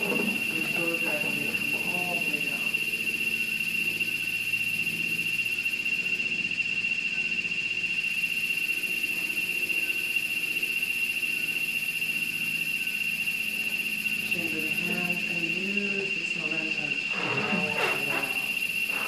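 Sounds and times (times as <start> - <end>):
faint low hum: 0.0 - 4.3
steady high-pitched whine: 0.0 - 19.0.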